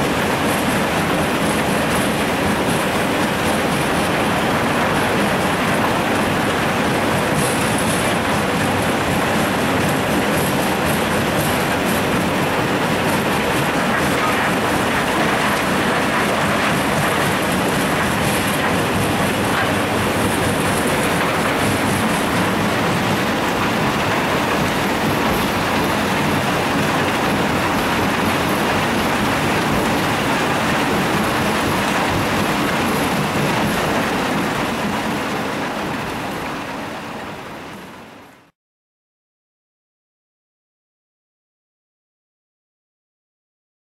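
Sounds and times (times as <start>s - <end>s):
conveyor noise: 0.0s - 38.5s
diesel engine: 4.1s - 34.7s.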